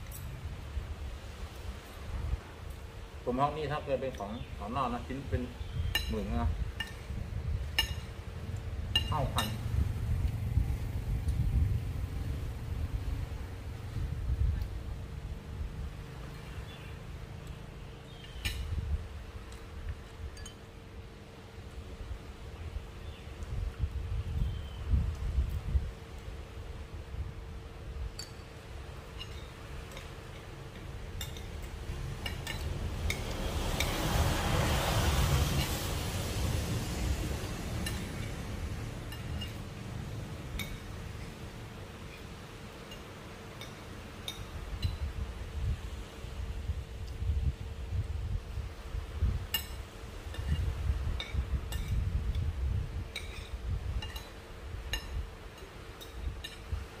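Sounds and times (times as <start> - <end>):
cutlery clinking against plate: 53.2 - 54.4.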